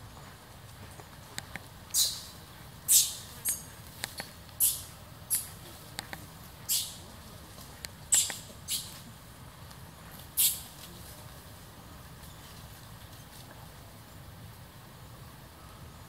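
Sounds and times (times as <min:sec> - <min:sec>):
baby monkey shrieking: 0:01.9 - 0:03.6, 0:04.6 - 0:05.6, 0:06.7 - 0:07.0, 0:08.1 - 0:09.0.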